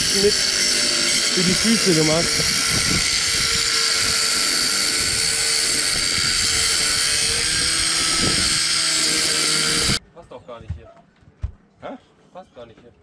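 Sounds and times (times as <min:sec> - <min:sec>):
angle grinder cutting metal tube: 0:00.0 - 0:10.0.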